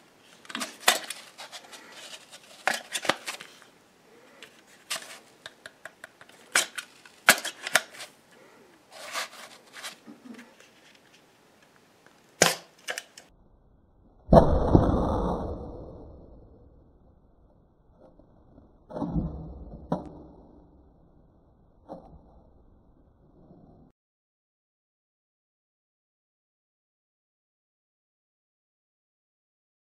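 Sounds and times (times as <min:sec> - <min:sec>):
plastic toy clicks and rattles: 0:04.4 - 0:08.1, 0:12.4 - 0:13.3
toy shooter loud pop: 0:12.4 - 0:12.8.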